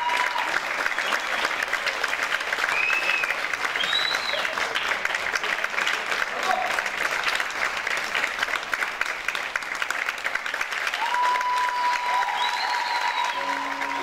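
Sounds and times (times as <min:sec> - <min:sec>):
audience applauding: 0:00.0 - 0:14.0
piano notes: 0:13.4 - 0:14.0.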